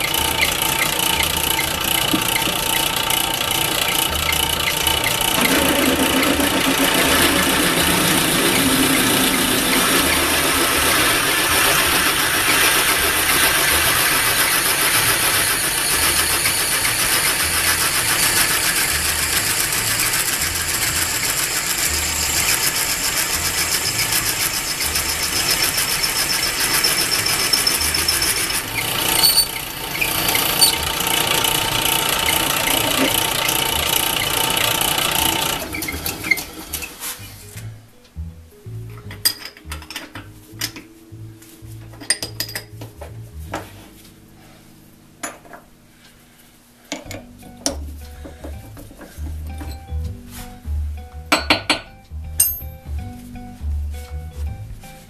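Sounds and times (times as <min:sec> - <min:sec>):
lathe running with whine: 0:00.0 - 0:37.1.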